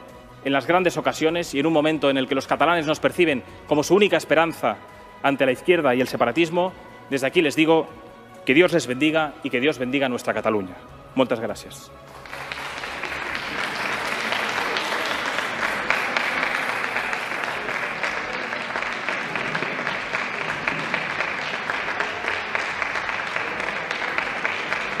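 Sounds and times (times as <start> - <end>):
people clapping: 12.0 - 25.0.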